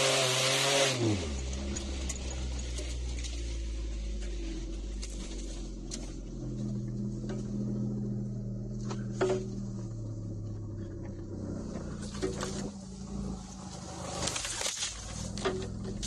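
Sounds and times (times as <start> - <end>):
car engine running inside cabin: 0.0 - 16.0
knocks and rattles over bumps: 1.0 - 16.0.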